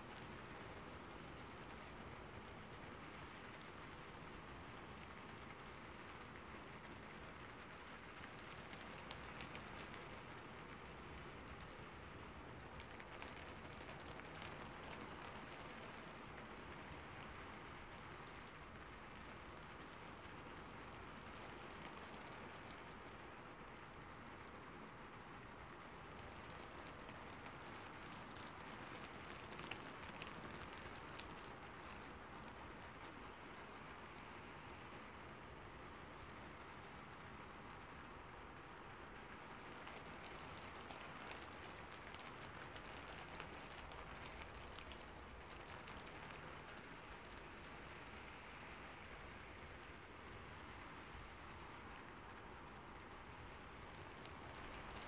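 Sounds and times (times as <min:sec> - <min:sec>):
faint steady hiss: 0:00.0 - 0:55.0
small ticks: 0:26.2 - 0:33.4, 0:39.6 - 0:48.3.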